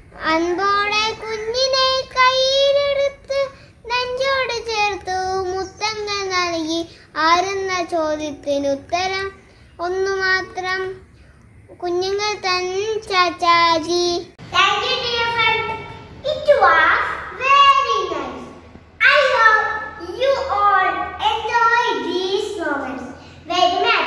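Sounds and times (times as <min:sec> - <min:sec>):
boy singing: 0:00.2 - 0:11.0.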